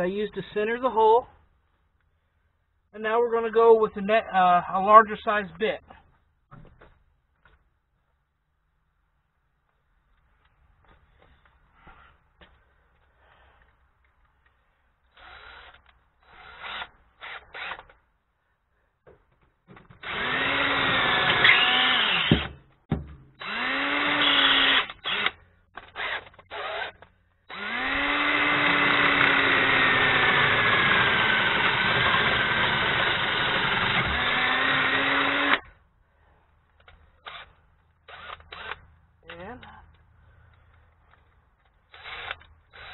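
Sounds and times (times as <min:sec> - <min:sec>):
power drill boring through steel: 0:15.1 - 0:17.8, 0:20.0 - 0:22.5, 0:23.4 - 0:35.6, 0:41.9 - 0:42.9.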